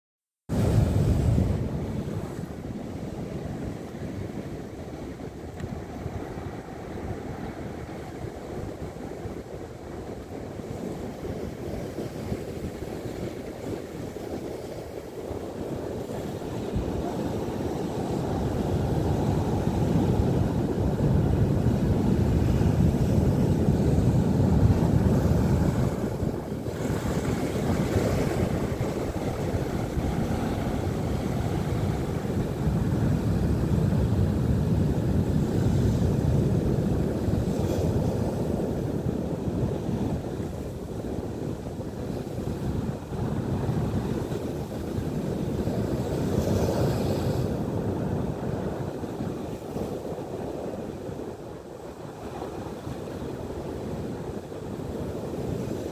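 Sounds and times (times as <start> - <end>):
surf breaking over rocks: 11.5 - 40.7.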